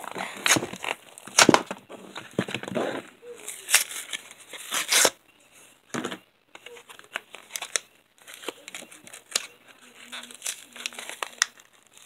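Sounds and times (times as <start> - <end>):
packaging being torn open: 10.1 - 12.0.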